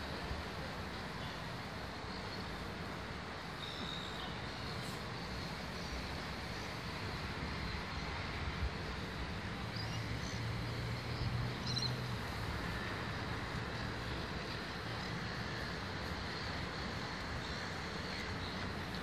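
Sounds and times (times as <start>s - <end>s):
distant city traffic rumble: 0.0s - 19.0s
faint high bird calls: 11.6s - 12.0s.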